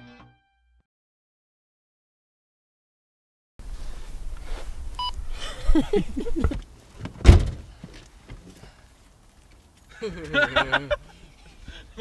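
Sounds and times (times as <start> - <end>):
short beep: 5.0 - 5.2
car door slamming: 6.4 - 7.8.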